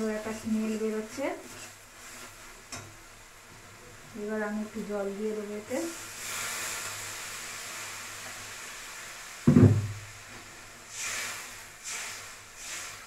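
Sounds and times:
water sizzling in hot pan: 0.0s - 13.0s
plastic jug thud on counter: 9.5s - 10.0s
spatula swishing in curry: 10.9s - 13.0s.

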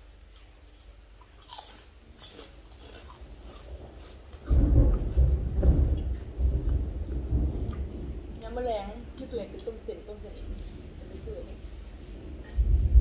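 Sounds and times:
chewing and biting shellfish: 0.1s - 4.7s
loud low rumble: 3.8s - 9.2s, 10.2s - 13.0s.

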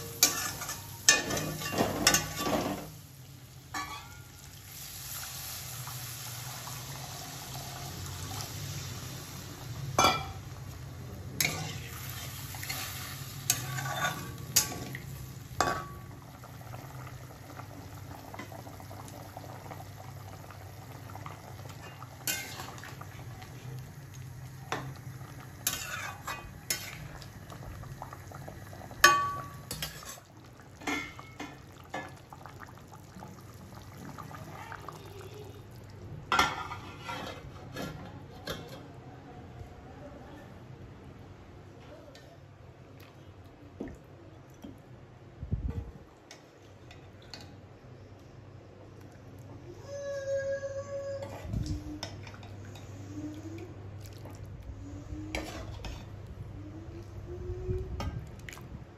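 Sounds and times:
spatula scraping a metal pan: 0.0s - 2.9s, 13.5s - 14.7s, 36.4s - 38.0s
curry cooking in a pan: 0.0s - 38.9s, 51.3s - 57.3s.

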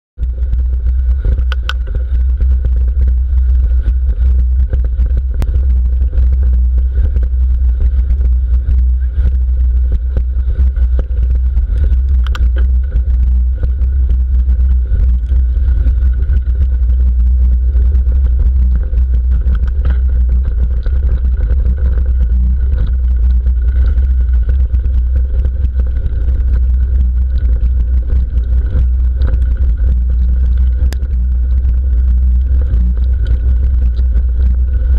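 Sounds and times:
bike tyres rumbling on gravel: 0.2s - 34.9s
bike clicks and rattles: 1.1s - 2.9s, 3.6s - 17.1s.

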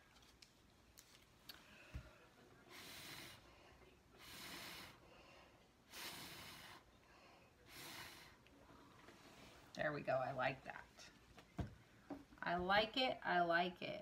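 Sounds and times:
person blowing breathy puffs: 2.7s - 3.5s, 4.2s - 5.0s, 5.9s - 6.8s, 7.7s - 8.4s.

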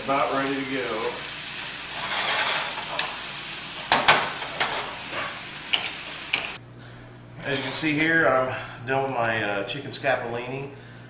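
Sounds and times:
chicken sizzling in a pan: 0.0s - 6.6s.

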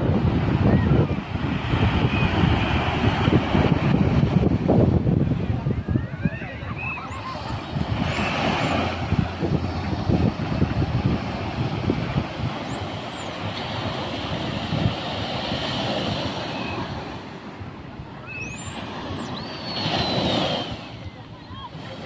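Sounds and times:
small waves breaking on sand: 0.0s - 22.0s
wind buffeting microphone: 0.0s - 22.0s
faint high whistle: 6.0s - 7.6s, 16.4s - 17.0s, 18.2s - 21.7s.

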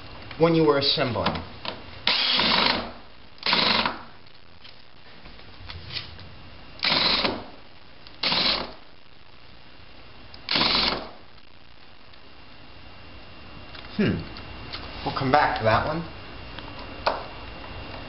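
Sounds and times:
cordless drill running: 2.0s - 4.0s, 6.8s - 7.5s, 8.2s - 8.8s, 10.5s - 11.2s.

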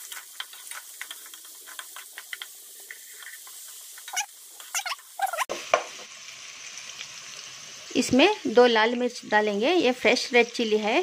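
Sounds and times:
wooden spatula stirring: 0.0s - 4.2s
onions sizzling in hot oil: 0.0s - 11.0s.

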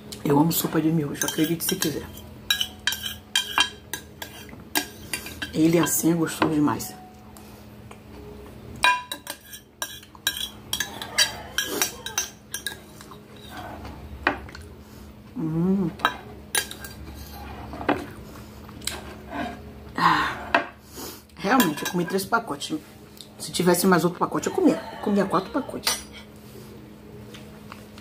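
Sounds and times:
person humming: 15.4s - 16.0s
metal spoon scraping glass container: 16.6s - 17.9s.

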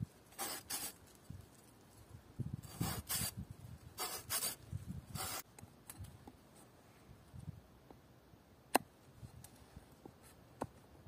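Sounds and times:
saw cutting wooden branch: 0.3s - 1.0s, 2.7s - 3.4s, 4.0s - 5.4s.

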